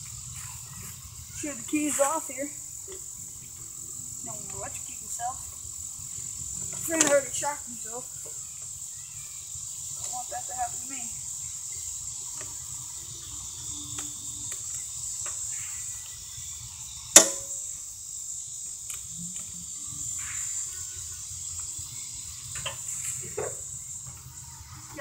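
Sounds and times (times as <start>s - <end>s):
insects chirring: 0.0s - 25.0s
sharp loud click: 17.1s - 17.6s.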